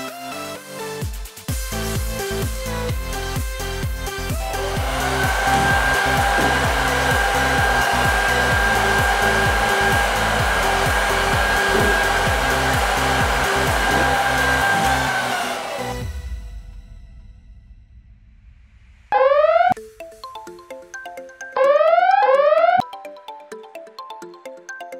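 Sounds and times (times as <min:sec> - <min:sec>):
hair dryer running: 0:04.2 - 0:16.4.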